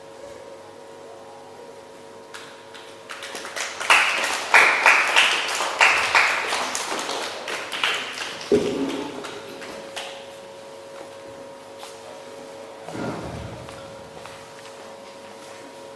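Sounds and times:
audience applauding: 2.7s - 10.2s.

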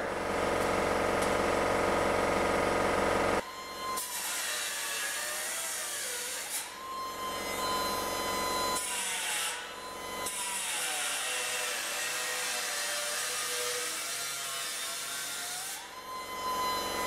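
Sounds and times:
angle grinder grinding metal: 3.6s - 17.0s.

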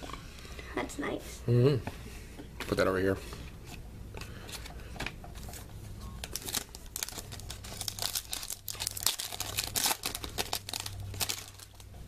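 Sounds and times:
foil wrapper crinkling and tearing: 6.2s - 11.9s.

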